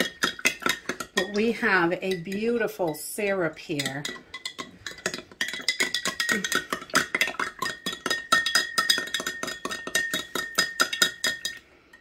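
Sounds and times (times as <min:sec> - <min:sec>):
spoon clinking in glass jar: 0:03.7 - 0:12.0.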